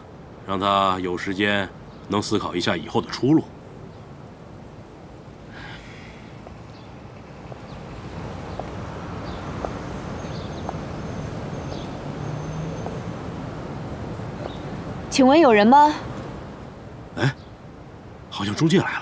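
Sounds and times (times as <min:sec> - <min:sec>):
traffic hum: 0:00.0 - 0:19.0.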